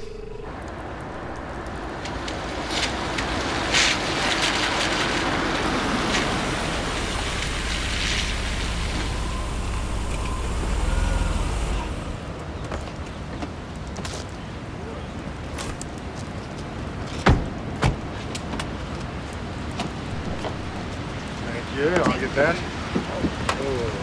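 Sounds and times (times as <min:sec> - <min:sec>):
car engine: 0:00.0 - 0:13.2, 0:20.0 - 0:21.6
street traffic: 0:00.0 - 0:24.0.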